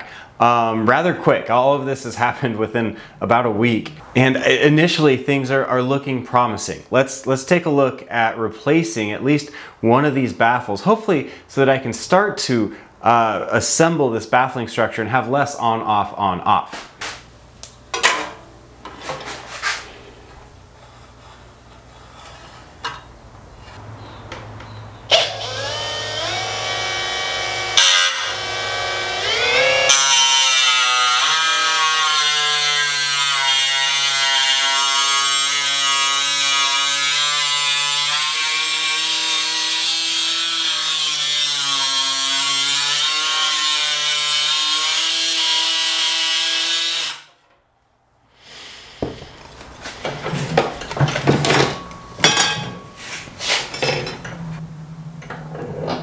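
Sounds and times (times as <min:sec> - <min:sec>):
cut-off tool cutting metal sheet: 0:27.8 - 0:29.3.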